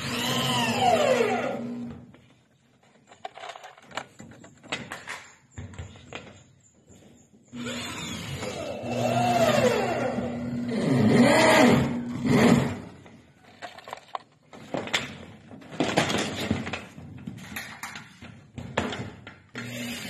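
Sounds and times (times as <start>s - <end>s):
electric drill driving a screw: 0.0s - 2.0s, 7.6s - 12.9s, 19.5s - 20.0s.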